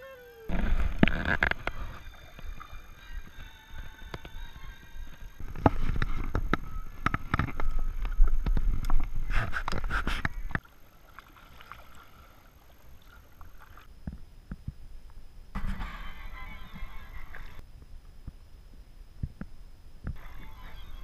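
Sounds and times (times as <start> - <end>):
river ambience: 0.0 - 21.0
water drips and splashes: 10.5 - 13.9.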